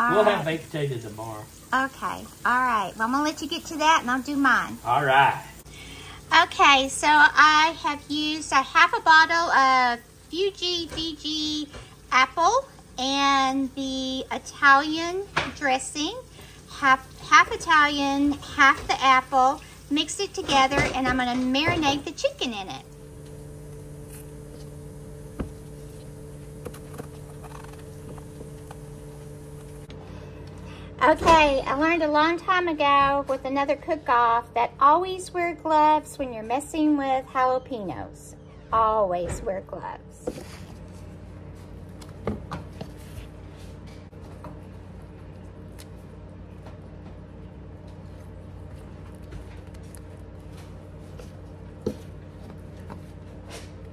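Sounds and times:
low hum: 16.0 - 53.9.

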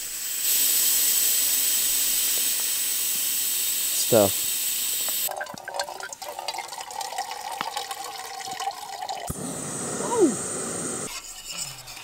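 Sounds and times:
steady hiss: 0.0 - 5.3, 9.3 - 11.7
water pouring into metal pot: 5.3 - 9.3.

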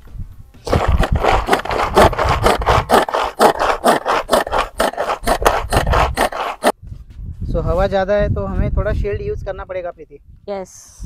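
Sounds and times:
hand food chopper whirring: 0.6 - 6.7.

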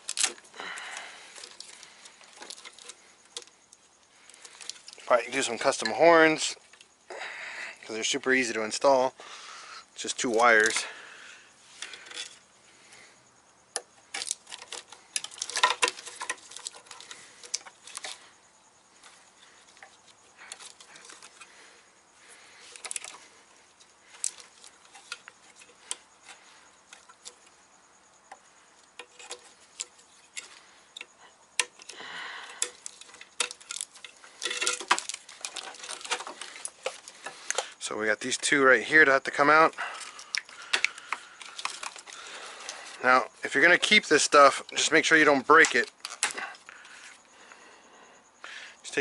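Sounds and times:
plastic clips clicking and rattling: 0.0 - 0.4, 13.7 - 18.2, 22.6 - 23.3, 32.6 - 38.4, 40.0 - 43.0, 45.5 - 46.6.

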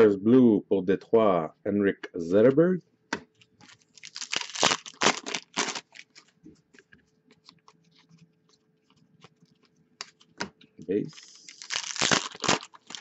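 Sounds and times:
foil wrapper tearing and crinkling: 3.6 - 6.2, 11.2 - 13.0.

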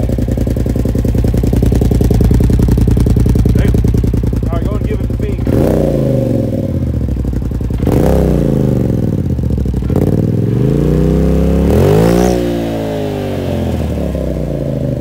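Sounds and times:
engine revving in throttle blips: 4.6 - 7.1, 7.7 - 15.0.

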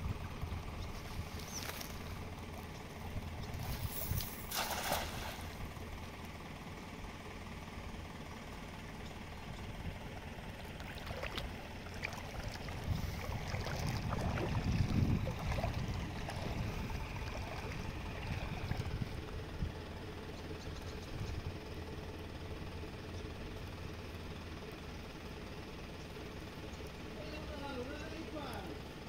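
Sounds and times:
water sloshing around wading person: 0.3 - 5.8, 10.1 - 19.8
net splashing into water: 3.6 - 5.7, 10.7 - 19.0.

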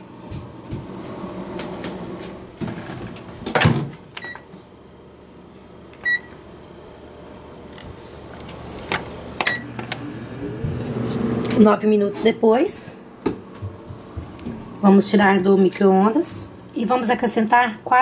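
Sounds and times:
microwave keypad beeps: 4.2 - 4.5, 6.0 - 6.4, 9.4 - 9.7.

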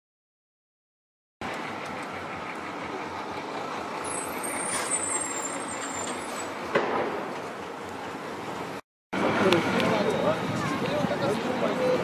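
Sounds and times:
bus passing: 1.4 - 12.0
street traffic: 1.4 - 12.0
high-pitched squeal: 4.0 - 6.7.

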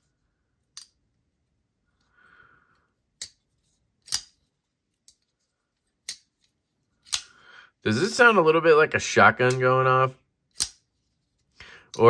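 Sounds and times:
folding knife blade snapping: 4.0 - 4.4, 10.5 - 10.8.

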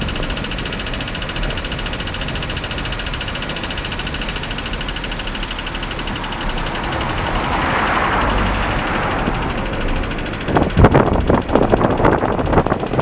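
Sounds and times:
car engine running: 0.0 - 13.0
rush of noise: 5.9 - 13.0.

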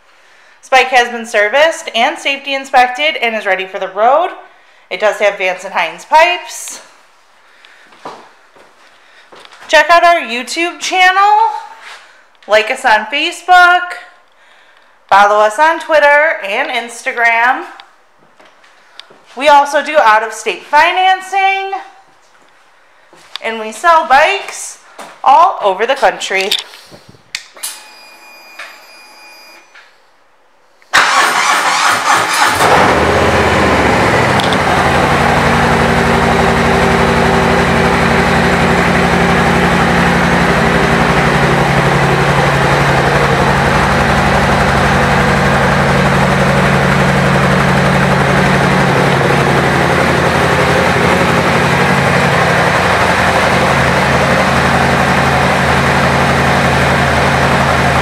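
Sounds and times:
motorcycle engine cranking and starting: 30.9 - 58.0
motorcycle engine idling: 32.8 - 58.0.

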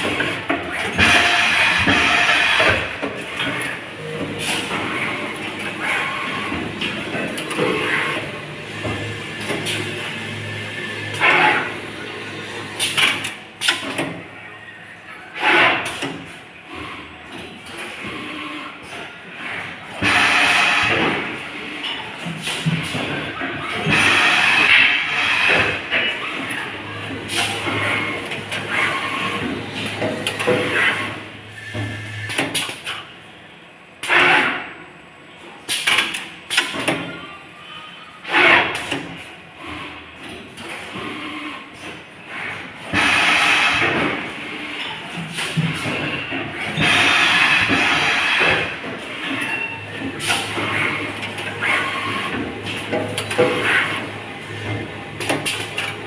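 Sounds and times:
machine clacks and clicks: 12.8 - 14.2, 15.4 - 33.1, 35.7 - 37.2, 38.2 - 56.0.

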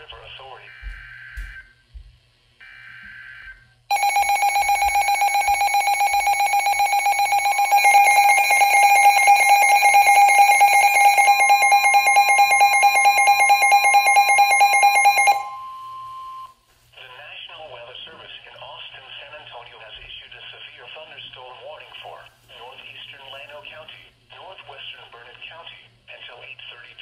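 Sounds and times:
pulsing alarm beeps: 2.6 - 16.5
steady warning tone: 2.6 - 16.5.

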